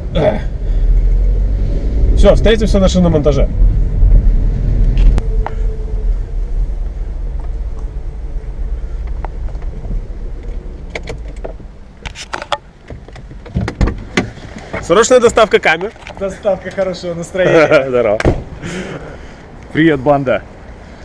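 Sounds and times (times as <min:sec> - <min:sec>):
road and engine rumble: 0:00.0 - 0:21.0
sharp knocks: 0:18.2 - 0:18.6.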